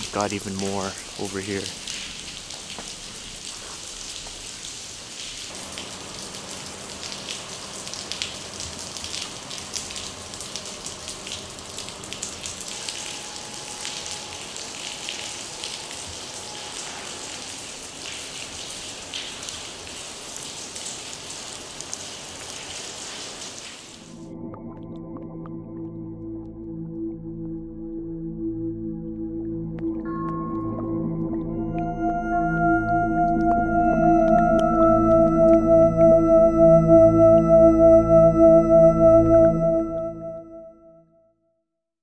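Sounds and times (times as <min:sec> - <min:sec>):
rain pattering and dripping: 0:00.0 - 0:26.6, 0:29.8 - 0:36.7.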